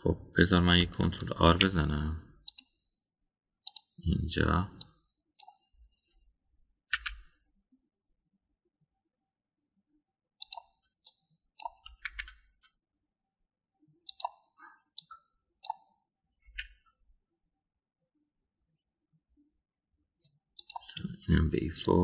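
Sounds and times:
keyboard and mouse clicks: 0:02.4 - 0:02.8, 0:03.6 - 0:04.0, 0:04.8 - 0:05.7, 0:06.9 - 0:07.4, 0:10.4 - 0:12.8, 0:14.0 - 0:16.9, 0:20.6 - 0:21.1.

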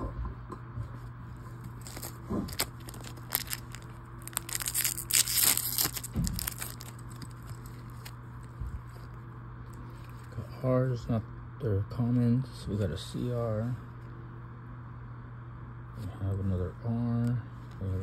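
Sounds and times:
faint low hum: 0:00.0 - 0:18.0
foil wrapper crinkling and ripping: 0:01.6 - 0:08.6.

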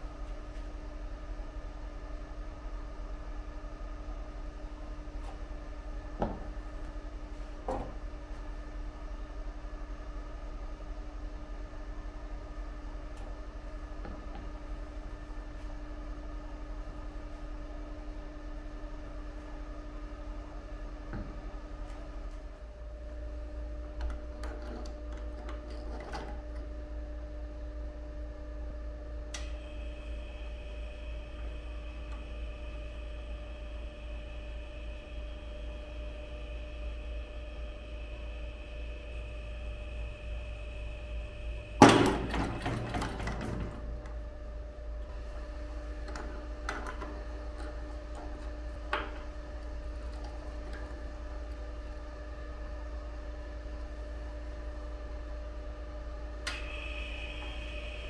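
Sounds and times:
electrical hum: 0:00.0 - 0:58.0
machine high whine: 0:29.4 - 0:44.3, 0:44.9 - 0:58.0.

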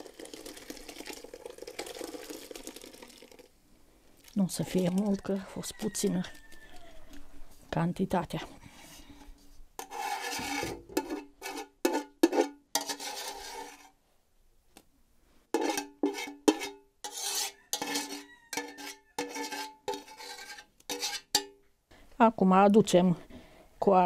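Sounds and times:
scraping inside enamel pot: 0:04.5 - 0:07.3, 0:08.6 - 0:14.0, 0:15.5 - 0:21.5.

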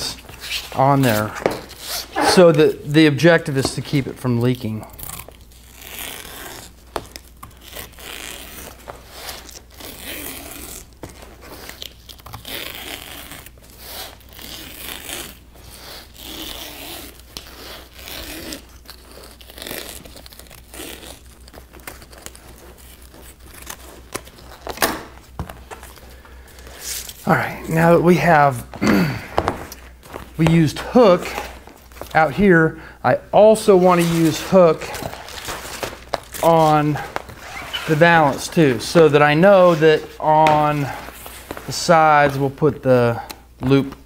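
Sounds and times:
fabric rustling: 0:29.4 - 0:32.4, 0:33.5 - 0:42.6.

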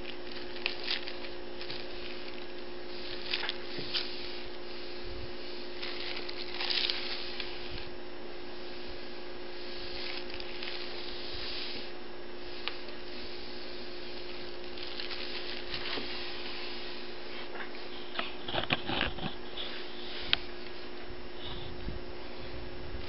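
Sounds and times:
paper crinkles: 0:00.0 - 0:04.2, 0:05.8 - 0:07.9, 0:09.9 - 0:11.0, 0:14.2 - 0:16.4
paper rustling and scratching: 0:00.0 - 0:04.5, 0:05.8 - 0:07.9, 0:09.8 - 0:11.3, 0:14.2 - 0:16.7, 0:18.2 - 0:20.1
steady low hum: 0:00.0 - 0:23.0.

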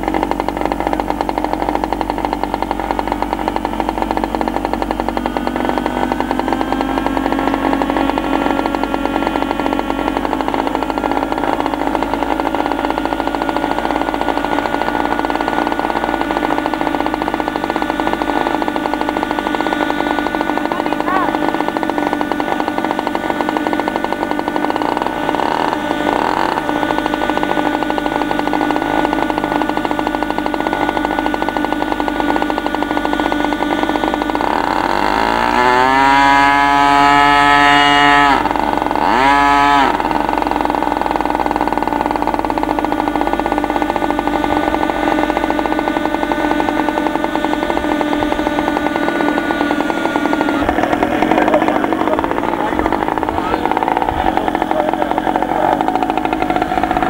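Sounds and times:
model airplane engine revving: 0:00.0 - 0:57.0.

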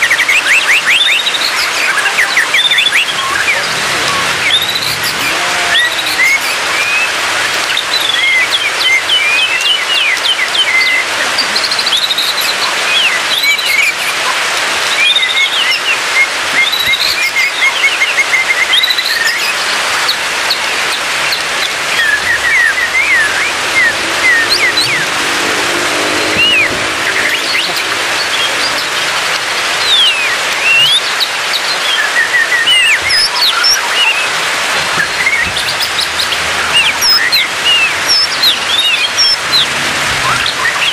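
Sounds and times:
bird singing whistled phrases: 0:00.0 - 0:03.6, 0:04.3 - 0:11.0, 0:14.9 - 0:20.6, 0:21.2 - 0:25.2, 0:29.8 - 0:34.4.

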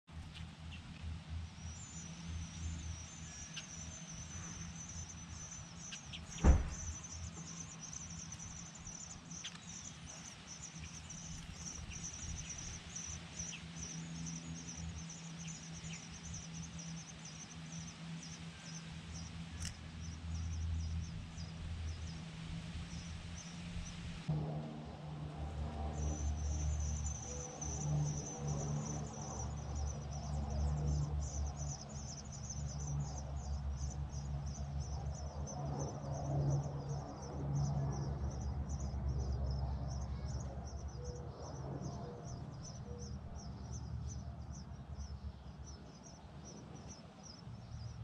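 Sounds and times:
steady low hum: 0:00.1 - 0:48.0
nestling birds begging chirps: 0:00.6 - 0:24.3, 0:25.6 - 0:48.0
sharp knock: 0:06.4 - 0:06.9.

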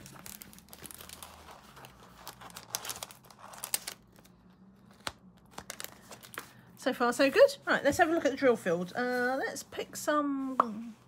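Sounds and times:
paper sheet crinkling: 0:00.0 - 0:06.6.

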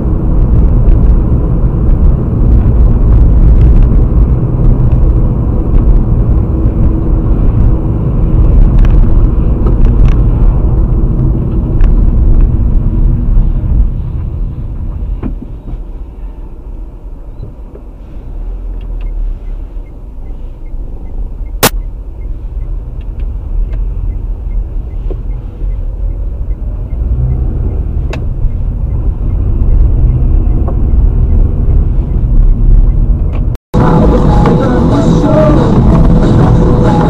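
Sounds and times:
car road and engine rumble: 0:00.0 - 0:37.0
sharp click: 0:21.5 - 0:21.9.

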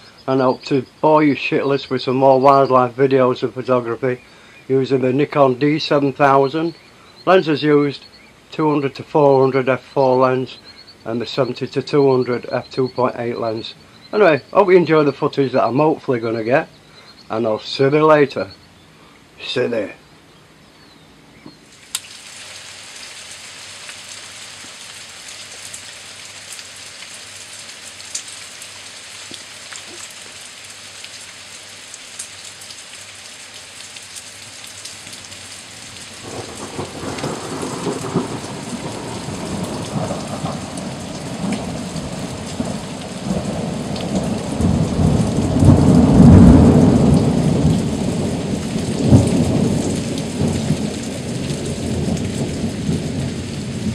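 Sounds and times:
rain falling: 0:00.0 - 0:53.9
thunder rolling: 0:36.2 - 0:53.9.

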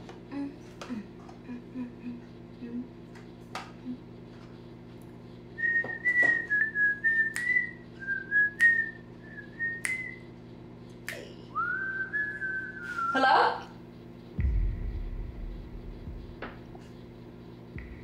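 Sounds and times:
woman whistling a tune: 0:05.6 - 0:10.2, 0:11.5 - 0:13.2.

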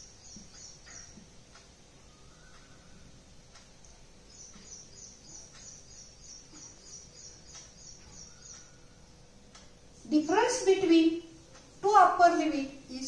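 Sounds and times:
bird chirping: 0:00.0 - 0:09.4.

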